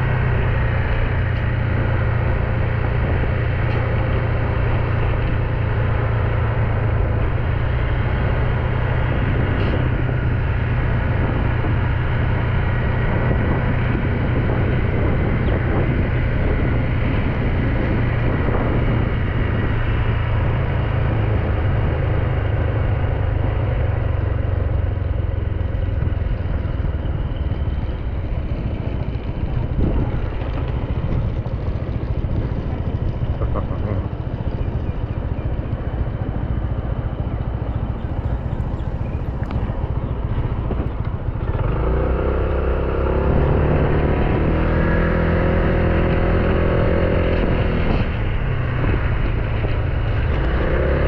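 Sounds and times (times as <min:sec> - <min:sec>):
heavy low rumble: 0:00.0 - 0:51.0
motorbike engine: 0:00.0 - 0:51.0.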